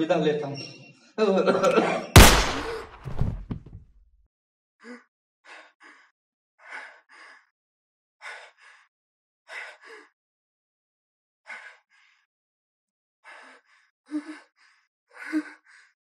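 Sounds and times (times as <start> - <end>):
loud gunshot: 2.2 - 3.4.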